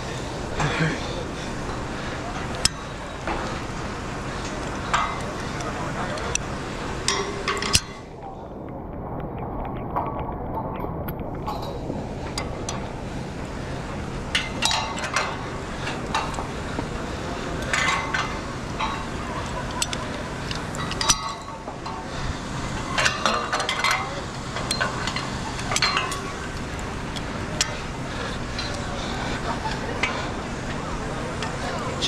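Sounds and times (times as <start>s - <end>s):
steady hiss: 11.4s - 32.0s.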